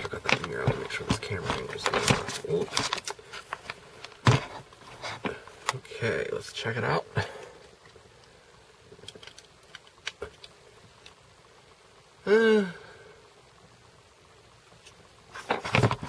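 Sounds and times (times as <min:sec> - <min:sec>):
camera handling clicks and bumps: 0:09.0 - 0:11.2
man's short wordless vocal sound: 0:12.2 - 0:13.0.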